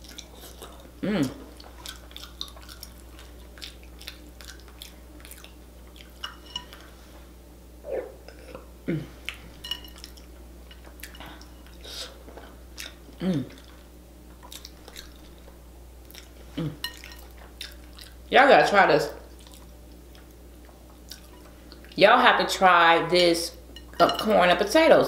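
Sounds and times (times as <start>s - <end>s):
wet chewing and lip smacking: 0.0s - 6.8s, 12.7s - 18.2s, 19.3s - 22.0s
person humming: 1.0s - 1.4s, 7.9s - 9.2s, 13.2s - 13.6s, 16.5s - 16.8s.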